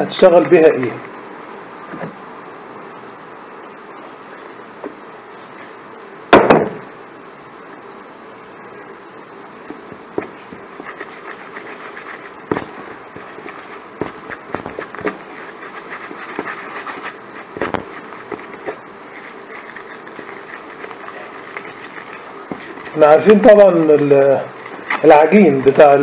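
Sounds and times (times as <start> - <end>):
stick stirring paste in plastic tub: 9.6 - 26.0.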